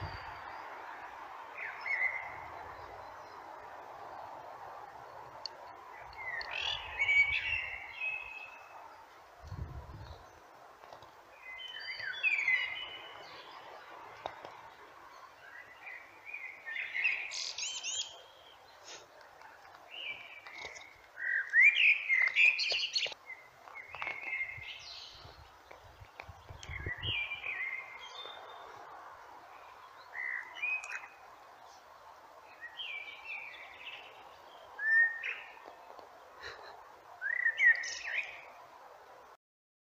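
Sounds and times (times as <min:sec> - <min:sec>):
blackbird singing: 0:06.0 - 0:08.7, 0:11.4 - 0:13.6, 0:15.4 - 0:18.6, 0:19.9 - 0:25.3, 0:26.4 - 0:28.7, 0:29.9 - 0:31.2, 0:32.5 - 0:35.8, 0:37.2 - 0:38.5.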